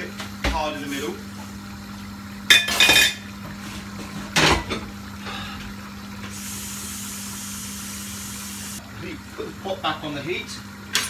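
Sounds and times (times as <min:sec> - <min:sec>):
tap water running: 0:00.0 - 0:11.0.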